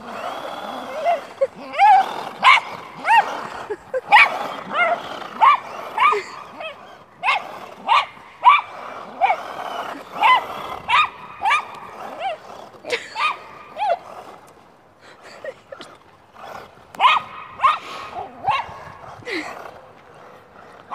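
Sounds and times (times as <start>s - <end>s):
dog yipping and barking: 1.0s - 3.3s, 4.0s - 9.5s, 17.0s - 18.8s.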